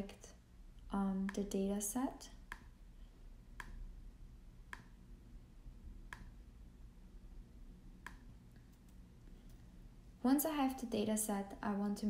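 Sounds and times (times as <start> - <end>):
low room hum: 0.0 - 12.0
computer mouse clicks: 4.7 - 5.0, 6.1 - 6.4, 8.0 - 9.6.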